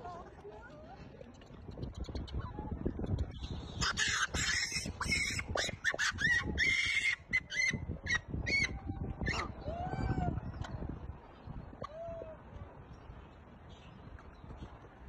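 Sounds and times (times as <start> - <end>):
monkey screeching and squealing: 3.6 - 9.5.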